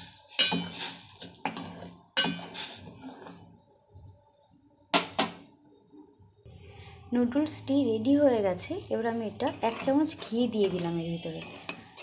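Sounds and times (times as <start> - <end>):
spoon clinking against pot: 0.4 - 1.0, 2.2 - 2.7.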